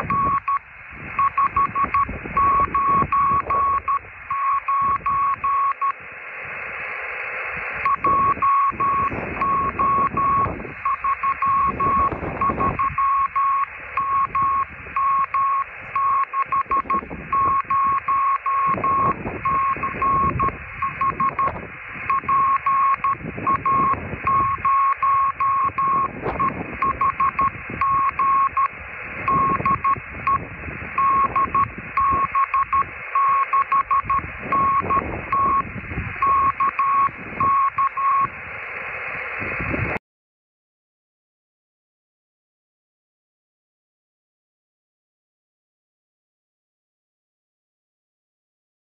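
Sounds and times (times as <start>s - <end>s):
morse code beeps: 0.0s - 0.6s, 1.2s - 6.0s, 7.8s - 38.4s
radio receiver hiss: 0.0s - 40.0s.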